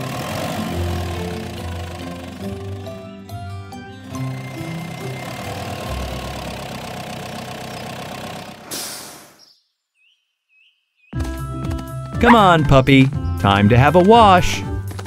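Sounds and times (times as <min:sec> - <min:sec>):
truck engine rumble: 0:00.0 - 0:09.3.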